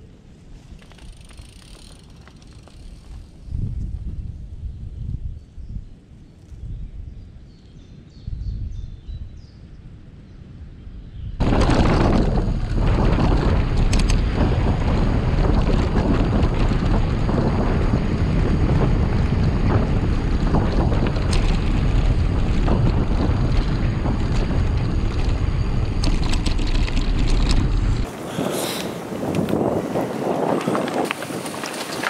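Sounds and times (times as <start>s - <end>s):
bicycle rattling over bumps: 0.4s - 4.1s, 11.4s - 28.2s, 29.2s - 32.0s
wind rushing over microphone: 2.8s - 32.0s.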